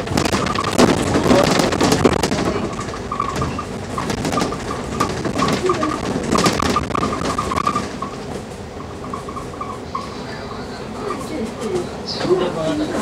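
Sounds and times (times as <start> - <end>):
bodywork rattles and knocks: 0.0 - 9.4
bus engine droning: 0.0 - 13.0.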